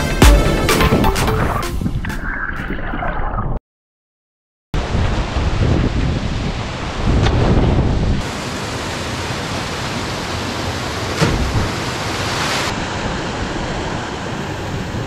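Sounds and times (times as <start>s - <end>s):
wind rumbling on microphone: 4.8s - 8.3s
water rushing over cascade: 8.2s - 15.0s
splash into water: 11.1s - 12.8s.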